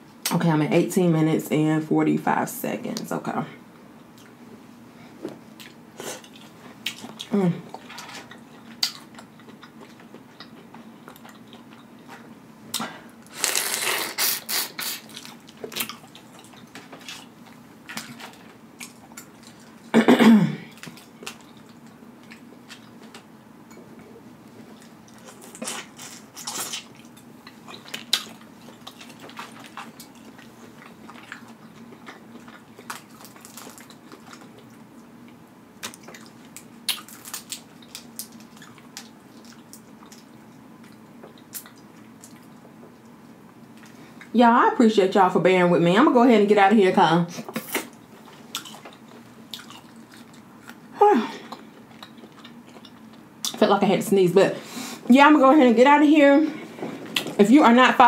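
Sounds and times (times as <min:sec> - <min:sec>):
crawfish shells cracking: 0:27.7 - 0:34.7, 0:35.8 - 0:40.3.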